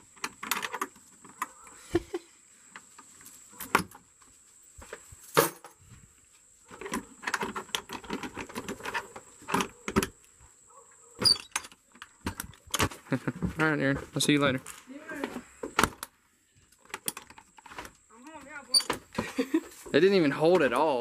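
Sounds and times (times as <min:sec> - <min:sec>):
padlock clinking on metal hasp: 0:11.2 - 0:11.8
lock clicking: 0:11.2 - 0:12.6.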